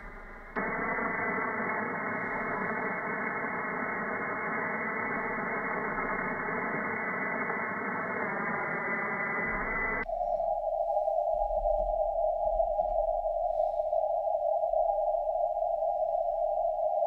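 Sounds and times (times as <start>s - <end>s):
radio static hiss: 0.0s - 10.0s
faint steady radio tones: 0.0s - 11.7s.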